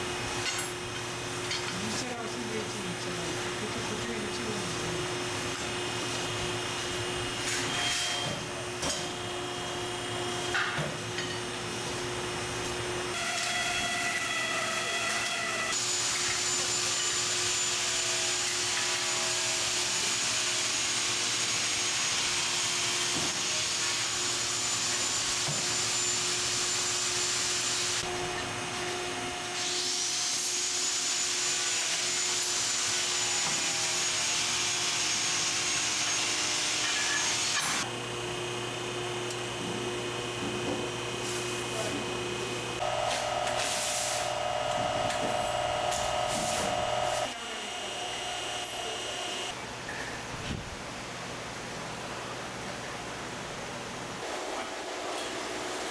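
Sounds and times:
machine humming: 37.8 - 49.5
loud hiss with high whine: 43.1 - 44.4.

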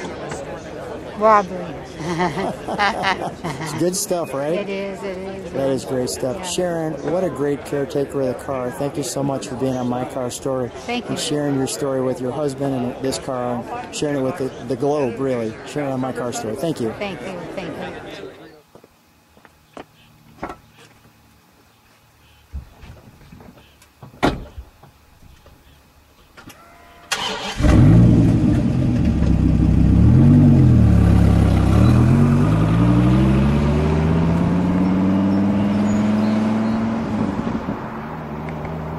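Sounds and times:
starter motor whirring: 27.1 - 29.4
car engine revving: 27.1 - 38.9.

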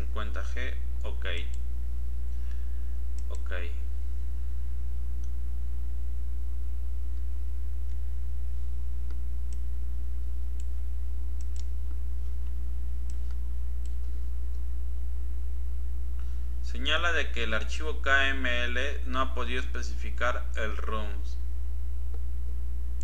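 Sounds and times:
low hum: 0.0 - 23.0
computer mouse clicks: 3.2 - 3.5, 11.4 - 14.6.

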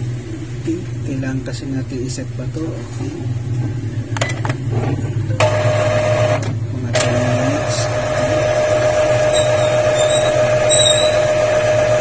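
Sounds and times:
printer mechanism whine: 5.4 - 12.0.

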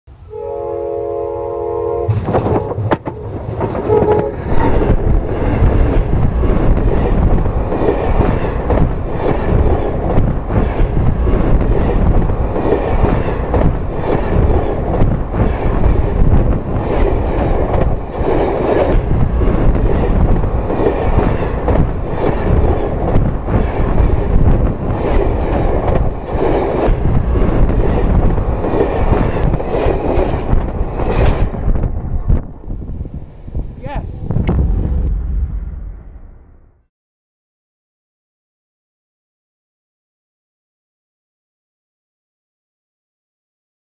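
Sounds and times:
train rumbling overhead: 0.1 - 36.9
diesel locomotive horn: 0.2 - 2.7, 3.8 - 4.6
steel wheels clattering over rails: 2.1 - 31.8.

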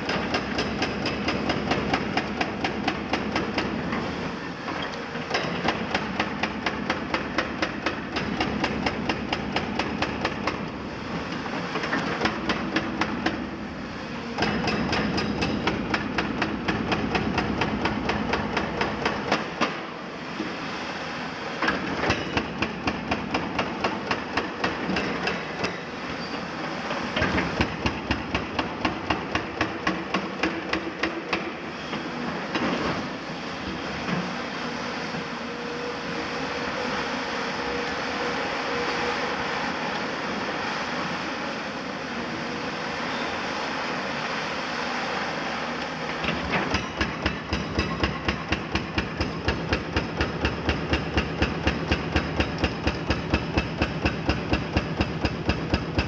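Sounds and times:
hydraulic breaker hammering concrete: 0.0 - 3.9, 5.2 - 10.7, 11.7 - 13.6, 14.4 - 19.9, 21.6 - 25.8, 27.2 - 31.6, 46.2 - 56.0.

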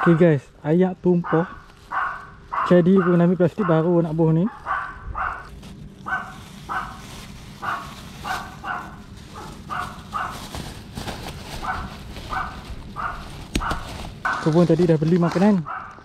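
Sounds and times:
dog barking: 1.2 - 10.6, 11.6 - 14.4, 15.6 - 16.0.

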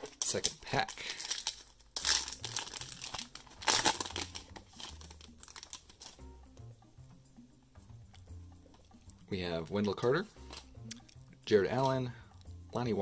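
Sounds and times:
foil wrapper crinkling: 0.0 - 6.2
soft rustling of cards: 0.0 - 6.2
soft background music: 0.0 - 13.0.

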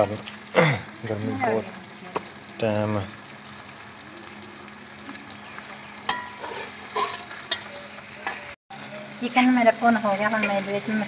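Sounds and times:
chicken sizzling in oil: 0.0 - 11.0
metal spatula scraping a pot: 6.1 - 8.6.

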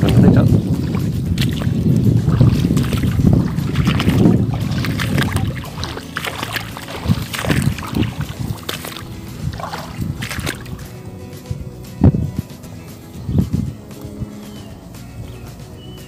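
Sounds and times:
light splashes: 0.0 - 11.0
faint background music: 0.0 - 16.0
wind rumbling on microphone: 0.0 - 16.0.

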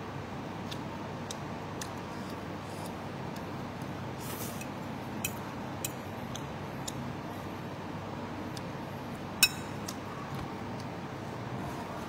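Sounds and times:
steady background noise: 0.0 - 12.0
fork clicking against bowl: 9.4 - 10.0.

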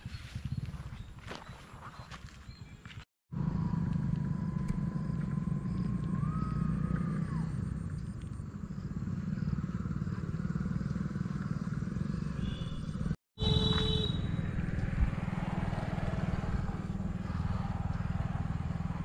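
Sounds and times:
wind buffeting microphone: 0.0 - 2.9, 14.4 - 19.0.

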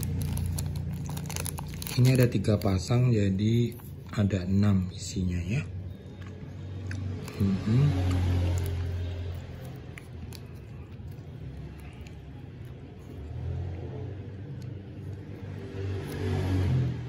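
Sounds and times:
plastic wrapper clicks: 0.0 - 2.9.

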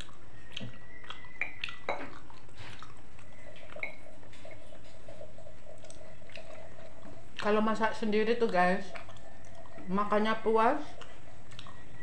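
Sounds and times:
small wet clicks and smacks: 0.0 - 4.4, 7.3 - 9.9, 11.0 - 11.8.

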